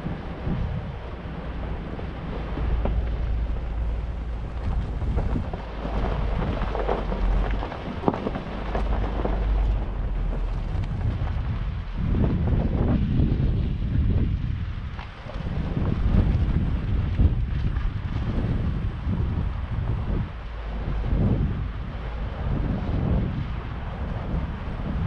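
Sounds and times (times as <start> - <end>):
wind buffeting microphone: 0.0 - 25.0
short crackles and knocks: 2.2 - 12.0.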